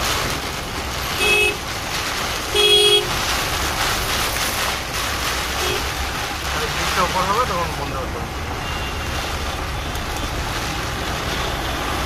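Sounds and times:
heavy rain: 0:00.0 - 0:12.0
traffic: 0:00.0 - 0:12.0
car horn honking: 0:01.2 - 0:01.6, 0:02.5 - 0:03.1.

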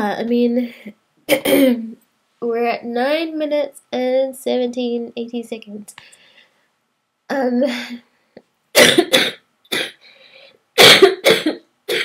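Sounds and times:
woman coughing: 0:01.3 - 0:01.9, 0:08.8 - 0:10.0, 0:10.8 - 0:12.0
woman breathing in: 0:06.0 - 0:06.7, 0:10.0 - 0:10.7.

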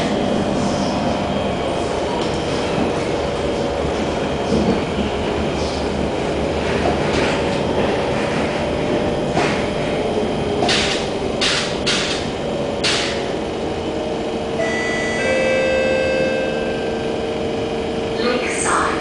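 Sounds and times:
train interior rumble: 0:00.0 - 0:19.0.

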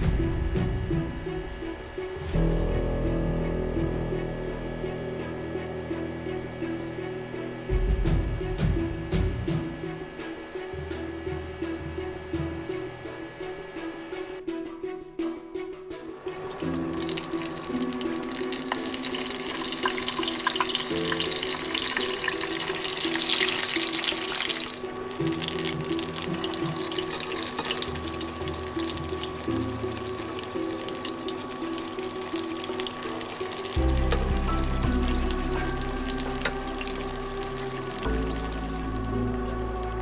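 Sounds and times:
background music: 0:00.0 - 0:40.0
patties sizzling in hot oil: 0:16.2 - 0:40.0.

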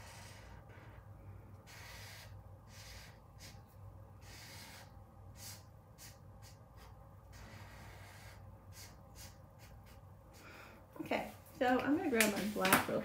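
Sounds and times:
marker scratching on paper: 0:00.0 - 0:10.1
faint room hum: 0:00.0 - 0:13.0.

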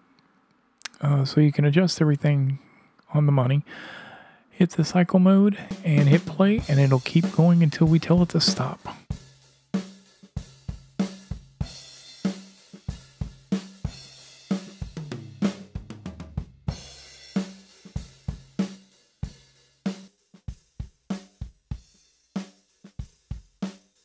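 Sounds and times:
drum kit groove: 0:04.8 - 0:24.0.

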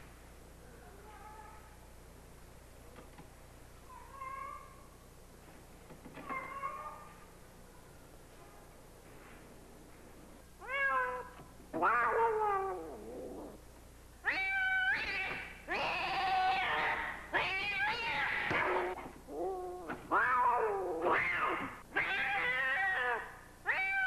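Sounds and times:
cat yowling: 0:10.6 - 0:13.6, 0:14.2 - 0:24.0.

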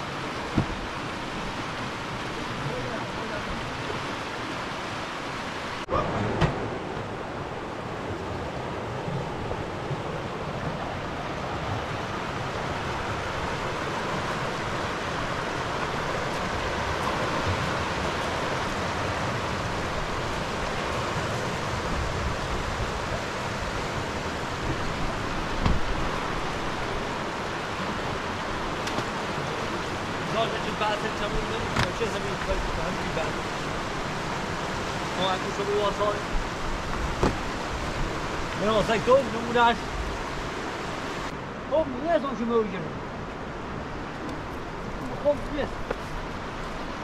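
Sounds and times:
river water rushing over rapids: 0:00.0 - 0:47.0
dull thump: 0:00.5 - 0:00.9, 0:06.3 - 0:06.7, 0:25.6 - 0:26.0, 0:31.7 - 0:32.0, 0:37.0 - 0:37.5.

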